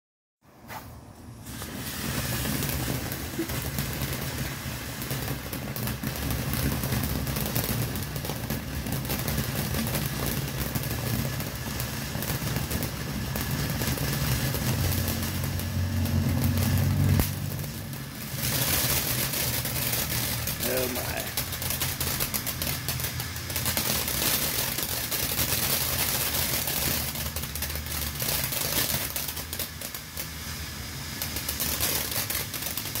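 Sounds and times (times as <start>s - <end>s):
firework crackling: 0.5s - 33.0s
firework fountain hissing: 0.6s - 33.0s.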